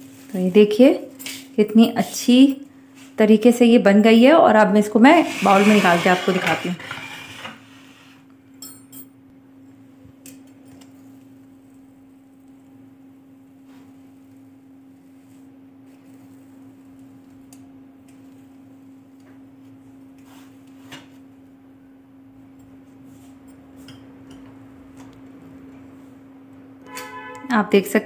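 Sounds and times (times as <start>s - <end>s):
ice cream scoop scraping: 5.1s - 8.2s.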